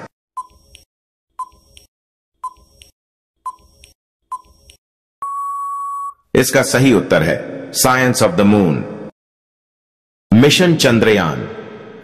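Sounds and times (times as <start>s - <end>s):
long steady beep: 5.2s - 6.2s.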